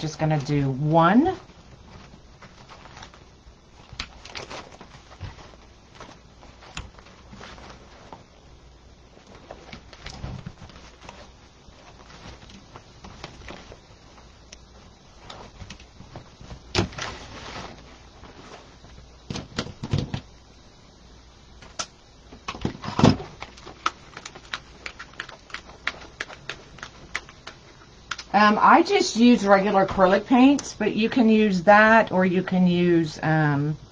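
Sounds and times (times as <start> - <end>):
ribbon rustling: 0.0 - 19.8, 23.2 - 28.8.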